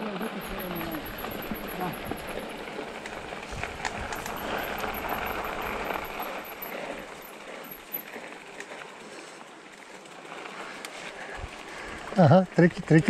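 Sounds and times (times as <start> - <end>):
bike tyres rolling on gravel: 0.0 - 13.0
bike rattling knocks: 0.4 - 7.9.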